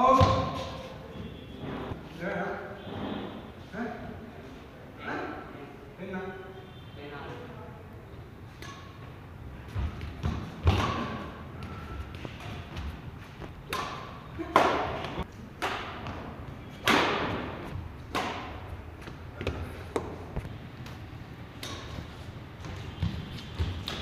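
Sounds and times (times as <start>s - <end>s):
rackets hitting shuttlecock: 8.6s - 9.1s, 9.7s - 24.0s.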